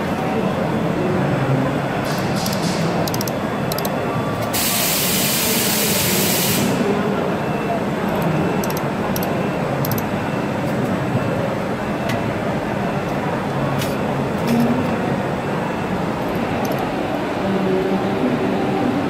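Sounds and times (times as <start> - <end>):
short sharp laser ticks: 2.1 - 3.9, 8.1 - 10.1.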